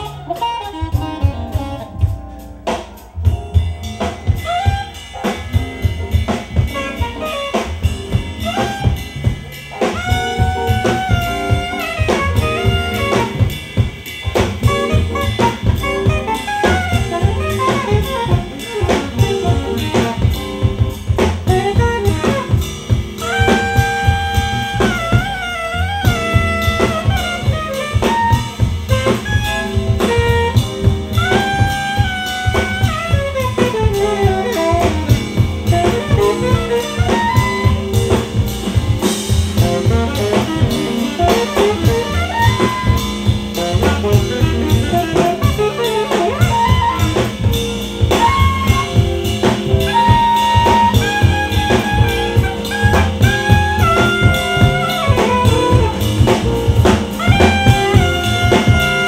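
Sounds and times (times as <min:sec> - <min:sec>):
alto saxophone solo: 0:00.0 - 0:59.0
jazz-funk band: 0:00.0 - 0:59.0.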